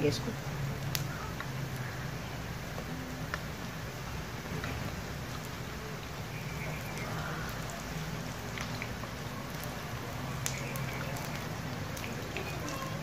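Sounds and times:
fritters sizzling in hot oil: 0.0s - 13.0s
sharp crackling pops: 0.8s - 2.0s, 10.3s - 12.4s.

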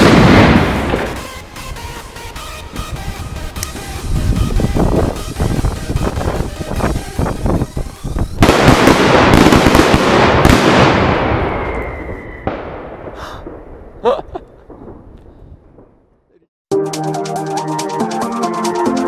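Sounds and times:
firecracker bang: 0.0s - 1.4s, 8.4s - 14.0s.

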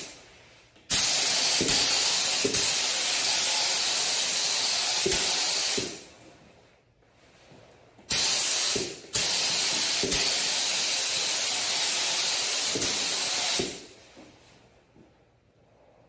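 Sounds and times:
spray gun hissing: 0.9s - 6.0s, 8.1s - 13.9s.

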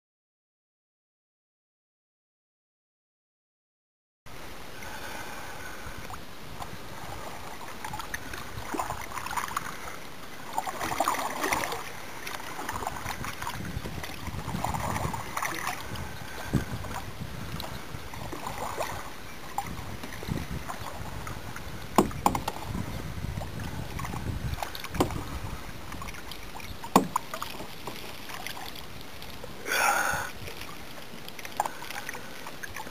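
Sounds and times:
paddle splashing water: 4.3s - 32.9s.

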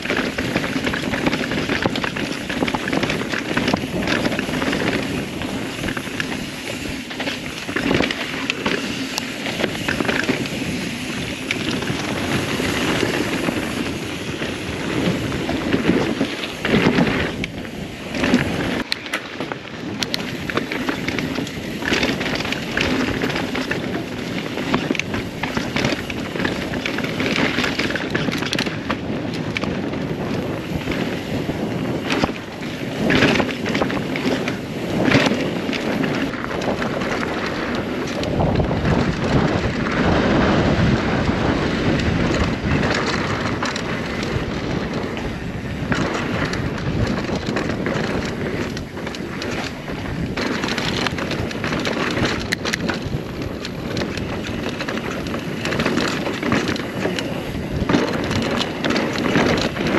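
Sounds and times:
bike clicks and rattles: 0.0s - 59.9s
tyres rolling over dirt and rocks: 0.0s - 59.9s
wind buffeting microphone: 0.0s - 59.9s.

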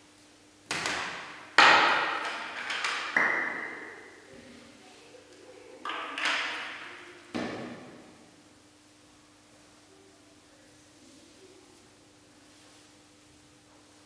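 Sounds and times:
hard objects knocking and clacking: 0.7s - 3.9s, 5.8s - 7.6s.

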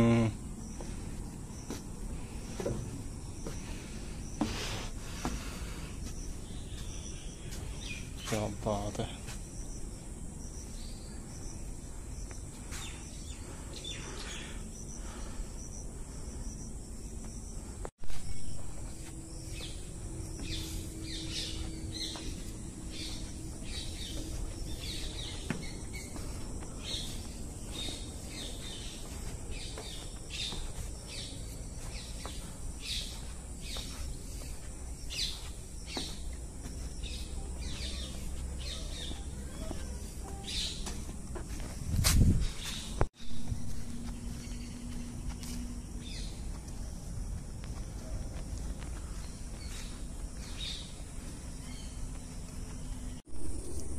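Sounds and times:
insect buzz: 0.0s - 53.9s
bird calls: 19.4s - 41.2s.

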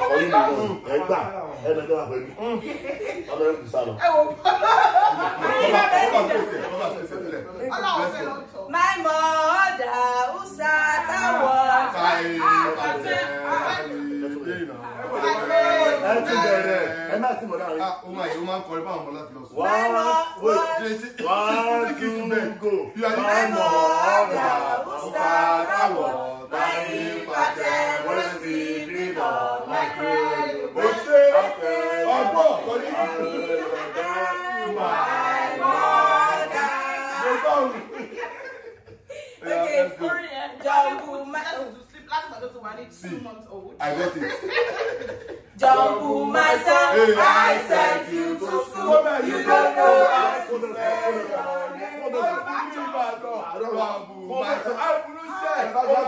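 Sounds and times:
group of people chanting: 11.0s - 17.2s, 21.6s - 38.0s, 45.6s - 53.0s
voices singing nursery rhyme: 21.6s - 37.7s, 45.6s - 52.0s.

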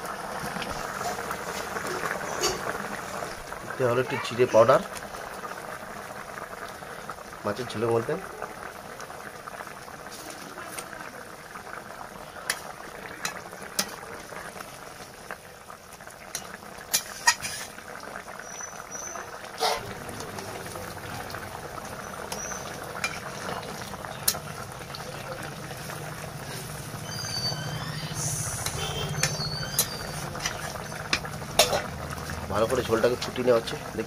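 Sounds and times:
curry bubbling in wok: 0.0s - 34.0s.

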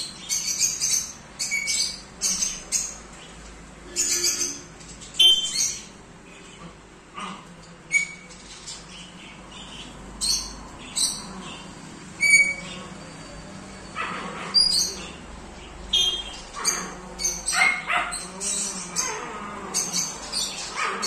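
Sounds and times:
parrot calls and whistles: 3.9s - 5.9s, 7.9s - 8.4s, 12.1s - 15.2s, 15.9s - 19.2s.

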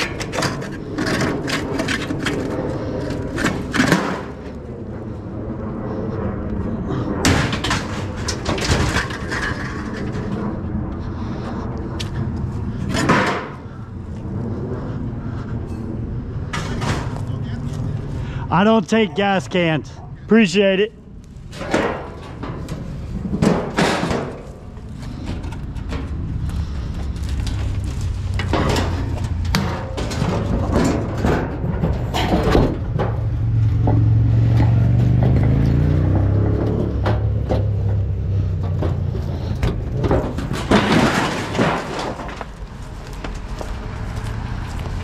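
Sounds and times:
knocks and rattles: 0.0s - 4.6s, 7.2s - 10.6s, 21.5s - 43.6s.

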